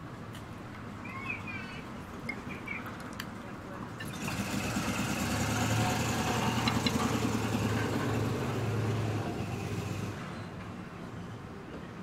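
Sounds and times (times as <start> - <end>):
large vehicle engine running: 4.0 - 10.3.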